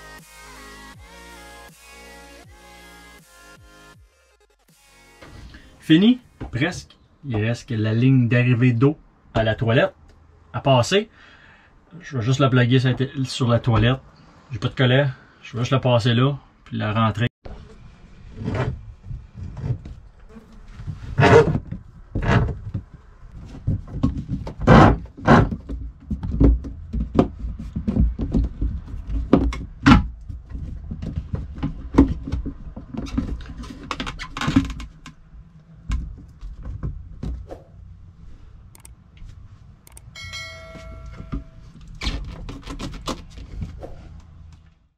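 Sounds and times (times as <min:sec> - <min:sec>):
plastic hose knocking and rubbing: 0:18.4 - 0:35.2, 0:35.8 - 0:37.6, 0:41.3 - 0:44.4.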